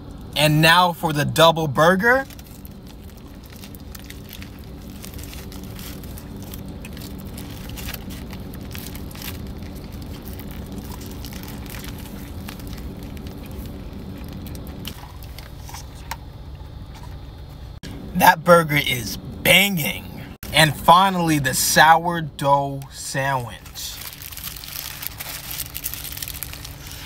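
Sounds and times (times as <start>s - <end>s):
steady low hum: 0.0s - 27.0s
paper wrapper crinkling: 2.2s - 16.0s, 23.5s - 27.0s
close-up chewing: 2.3s - 17.3s.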